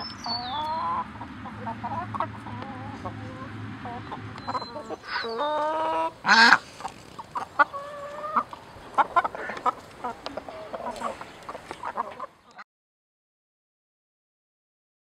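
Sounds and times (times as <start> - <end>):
hens clucking: 0.0 - 12.6
hen squawk: 0.3 - 12.3.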